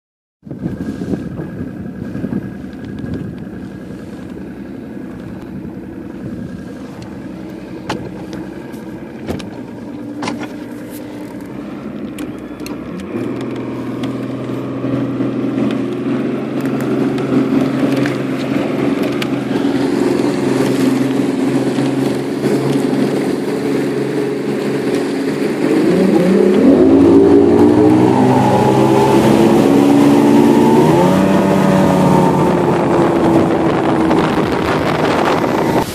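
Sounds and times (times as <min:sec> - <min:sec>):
motorboat engine revving: 0:00.4 - 0:35.9.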